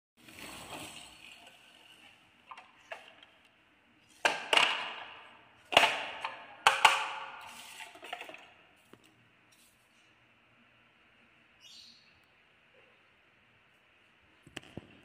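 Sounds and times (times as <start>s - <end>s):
plastic toy truck clacks: 4.2s - 7.3s.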